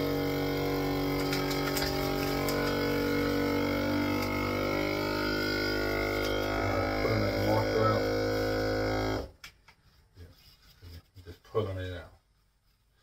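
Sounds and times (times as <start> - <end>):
vacuum sealer pump droning: 0.0 - 9.4.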